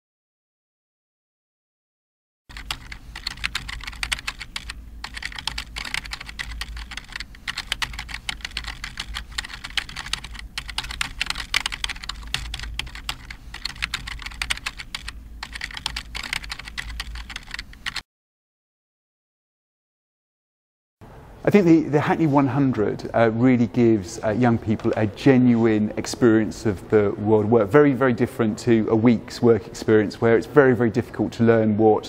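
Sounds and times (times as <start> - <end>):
rapid keyboard typing: 2.5 - 18.0
steady low hum: 2.5 - 18.0.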